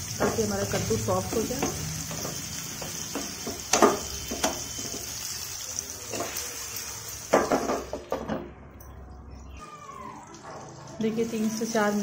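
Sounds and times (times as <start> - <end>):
food sizzling in oil: 0.0 - 8.2, 9.6 - 12.0
metal clanking against pan: 0.1 - 5.1.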